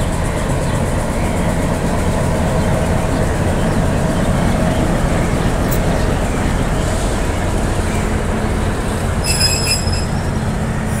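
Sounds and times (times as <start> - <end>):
diesel locomotive engine rumble: 0.0 - 11.0
train wheels on rails: 0.0 - 11.0
high-pitched wheel squeal: 9.1 - 11.0.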